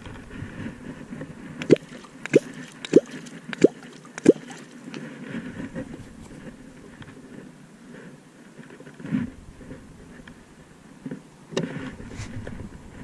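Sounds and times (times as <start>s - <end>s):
hollow plop struck into water: 1.6s - 4.6s.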